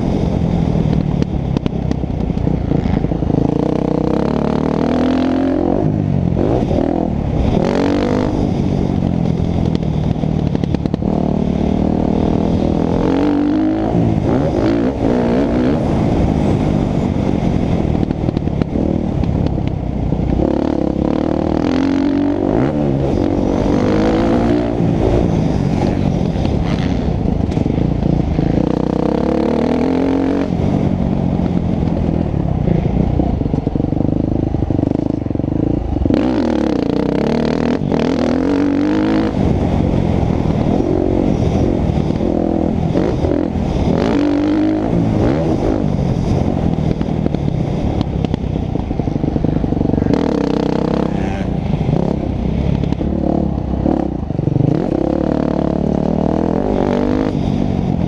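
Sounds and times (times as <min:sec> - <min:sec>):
motocross bike engine revving: 0:02.6 - 0:09.0, 0:10.6 - 0:17.4, 0:20.3 - 0:30.9, 0:34.8 - 0:48.3, 0:49.3 - 0:57.7.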